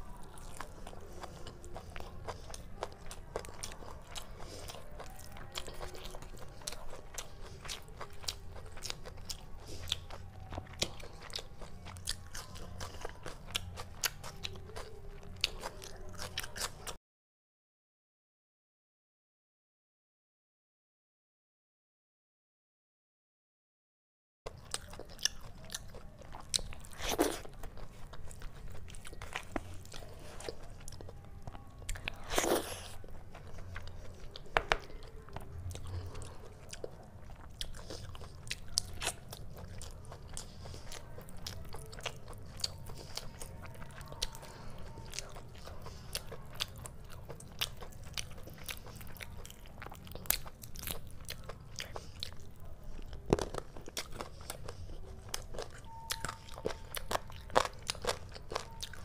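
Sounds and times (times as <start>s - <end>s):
wet chewing and mouth smacks: 0.1s - 17.0s, 24.5s - 59.0s.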